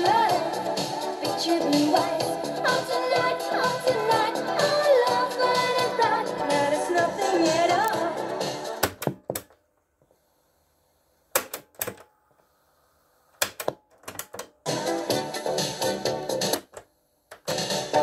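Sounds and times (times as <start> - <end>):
music from cassette tape: 0.0 - 9.5, 13.4 - 18.0
cassette buttons clacking: 8.8 - 9.6, 13.4 - 14.6.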